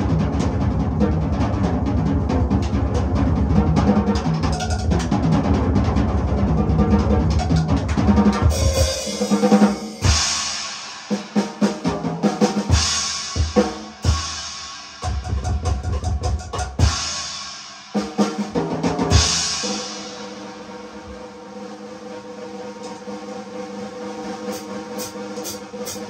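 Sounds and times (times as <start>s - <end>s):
drums playing: 0.0s - 21.4s, 24.2s - 26.0s
cymbal wash: 8.4s - 11.6s, 19.1s - 26.0s.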